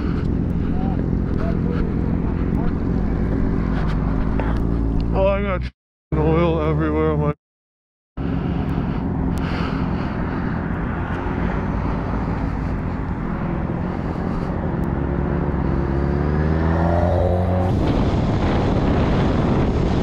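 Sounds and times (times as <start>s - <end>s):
motorcycle engine running: 0.0s - 5.4s, 8.2s - 18.7s
wind rush on microphone: 16.5s - 20.0s.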